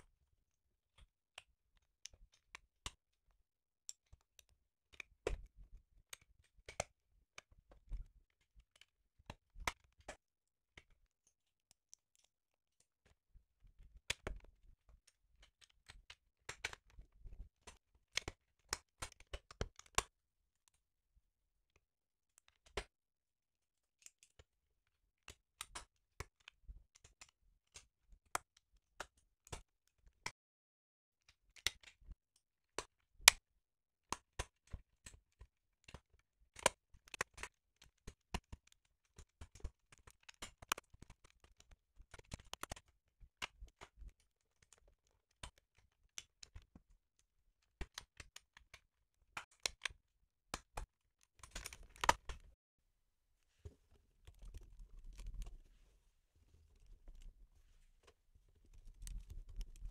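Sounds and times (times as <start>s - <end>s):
plastic bricks snapping together: 50.5s - 52.5s.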